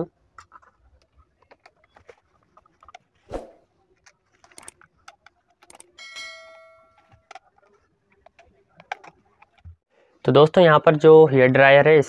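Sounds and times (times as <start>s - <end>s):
metallic ring: 6.0s - 7.2s.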